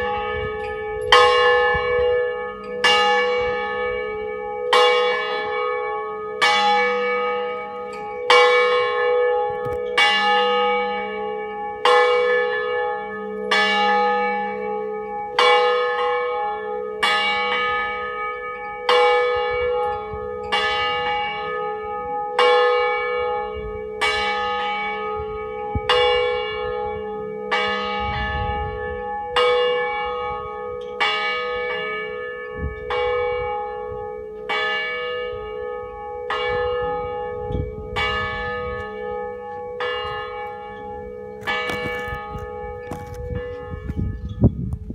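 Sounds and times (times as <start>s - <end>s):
church bell ringing: 0.0s - 44.9s.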